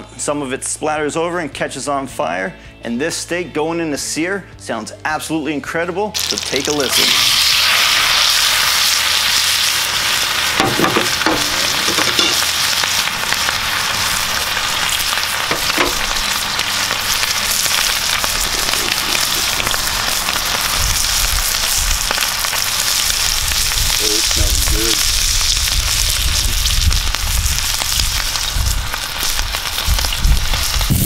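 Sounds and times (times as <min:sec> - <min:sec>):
steak sizzling in a pan: 0:06.2 - 0:31.0
fat spattering pops: 0:15.4 - 0:16.1.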